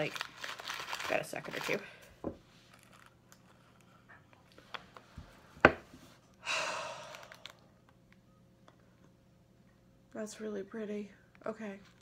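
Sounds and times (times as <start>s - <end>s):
person breathing in: 6.4s - 7.6s.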